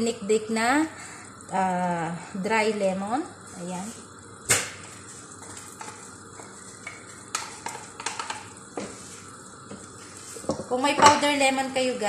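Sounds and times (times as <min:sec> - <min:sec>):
faint sizzle: 0:00.0 - 0:12.0
wooden spatula stirring in pot: 0:04.8 - 0:11.3.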